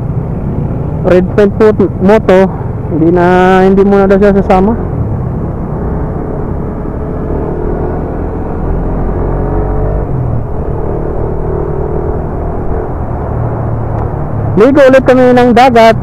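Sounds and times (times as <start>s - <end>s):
road and wind noise: 0.0s - 16.0s.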